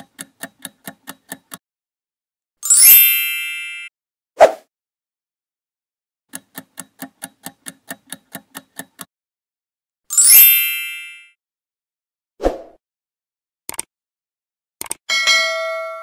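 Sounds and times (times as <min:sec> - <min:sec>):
timer ticking: 0:00.0 - 0:01.6, 0:06.3 - 0:09.1
bell-like ding: 0:02.6 - 0:03.9, 0:10.1 - 0:11.4, 0:15.1 - 0:16.0.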